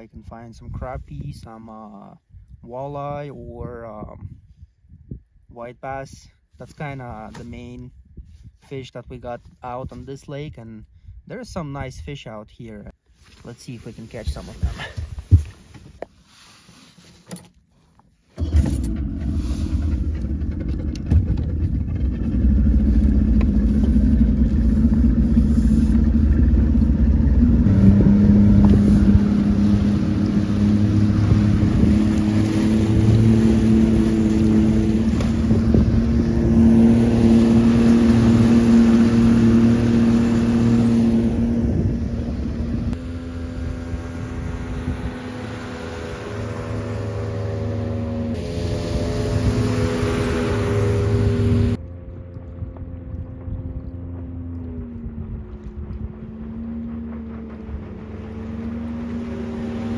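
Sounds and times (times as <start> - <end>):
outboard motor running: 18.4 - 59.9
water rushing along hull: 18.4 - 59.9.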